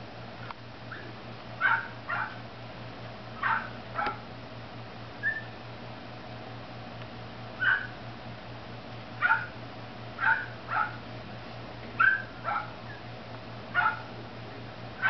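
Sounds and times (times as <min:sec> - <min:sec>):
puppy yipping: 0:00.9 - 0:02.4, 0:03.4 - 0:04.2, 0:05.2 - 0:05.5, 0:07.6 - 0:08.0, 0:09.2 - 0:09.5, 0:10.2 - 0:11.0, 0:12.0 - 0:13.0, 0:13.8 - 0:14.1.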